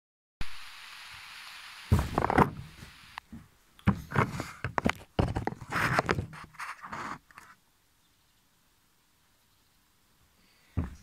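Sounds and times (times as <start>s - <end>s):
knocks and bumps: 1.9s - 6.4s, 10.8s - 11.0s.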